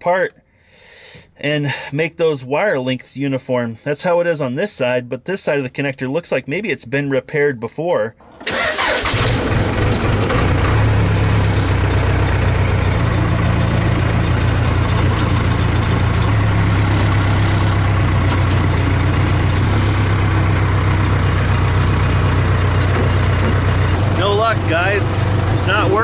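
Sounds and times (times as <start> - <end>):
diesel engine idling: 8.4 - 26.0.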